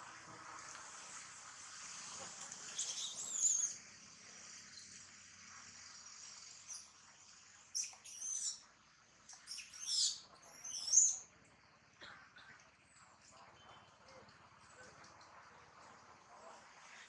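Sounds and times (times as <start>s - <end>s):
steady high hiss: 0.0s - 12.0s
monkey squealing and screaming: 2.8s - 3.8s, 7.8s - 8.6s, 9.5s - 11.2s.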